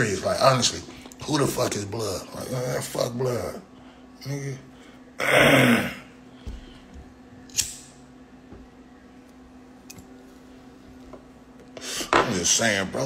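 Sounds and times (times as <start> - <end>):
low electrical hum: 0.0 - 13.0
man's loud vocal outburst: 5.2 - 6.1.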